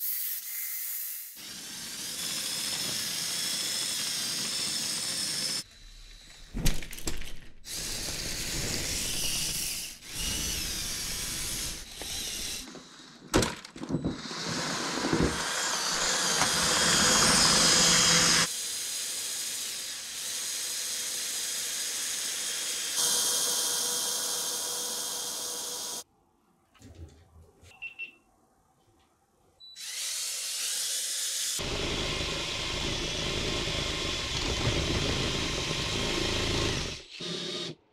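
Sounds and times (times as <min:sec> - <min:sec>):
electric motors whining: 0:14.0 - 0:18.5, 0:31.6 - 0:37.8.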